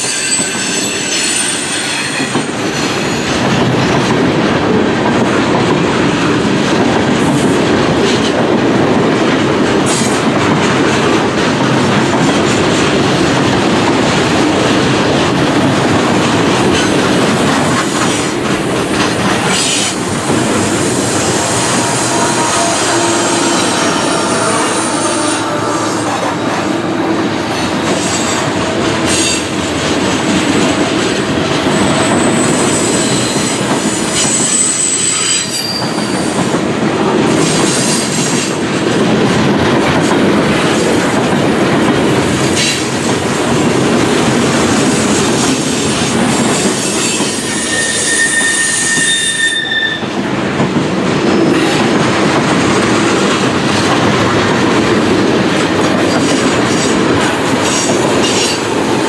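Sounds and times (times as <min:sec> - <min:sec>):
freight train wheels rumbling: 0:00.0 - 0:59.0
high thin wheel squeals: 0:34.1 - 0:36.3, 0:46.6 - 0:50.1.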